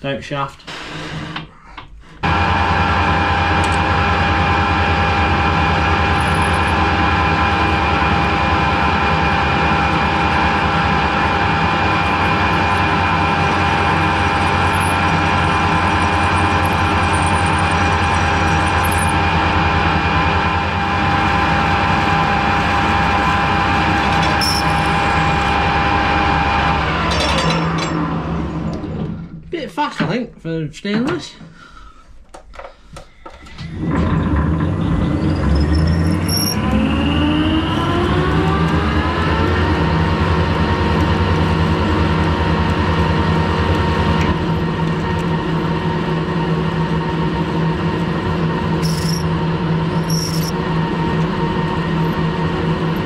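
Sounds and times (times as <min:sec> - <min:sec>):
lathe mechanical whine: 0:02.2 - 0:29.2, 0:33.6 - 0:53.0
low hum: 0:02.2 - 0:29.2, 0:34.5 - 0:53.0.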